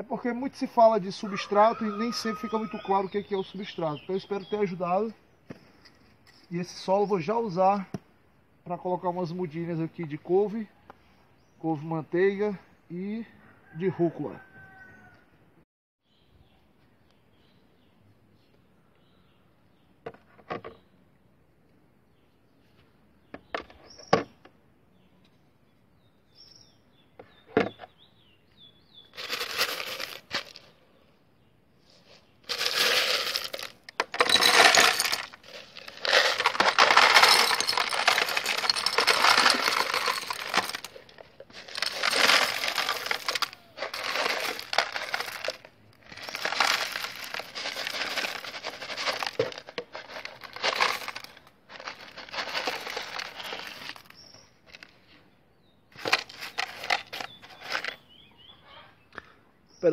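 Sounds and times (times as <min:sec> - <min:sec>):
gravel pouring and rattling: 0:29.2 - 0:30.7, 0:32.4 - 0:54.8
roof tile knocking in plastic container: 0:32.5 - 0:40.9.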